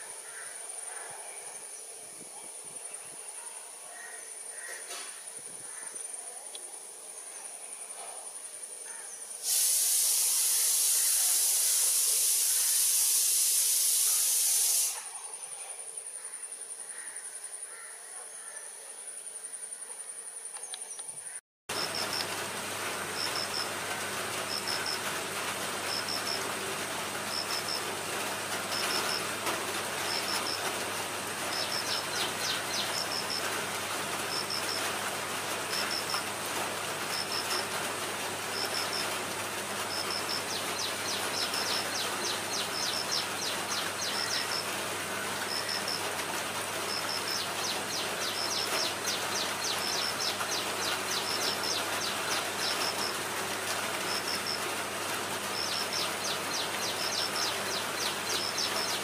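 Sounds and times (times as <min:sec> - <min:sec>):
insects trilling: 0:00.0 - 0:59.0
loud high-pitched insect buzz: 0:09.5 - 0:15.1
rain falling on leaves: 0:21.7 - 0:59.0.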